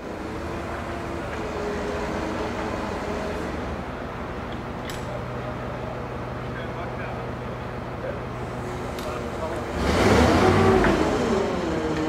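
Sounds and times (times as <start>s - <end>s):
crane engine running: 0.0s - 12.0s
sharp metallic click: 4.8s - 5.2s.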